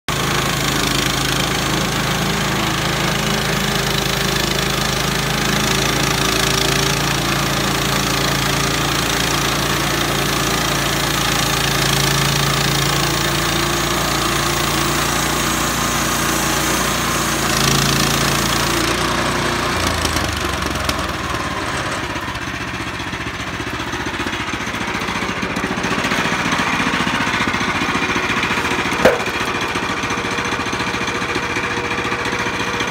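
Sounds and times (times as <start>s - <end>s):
band saw cutting wood: 0.1s - 21.0s, 24.1s - 31.0s
small gasoline engine under load: 0.1s - 32.9s.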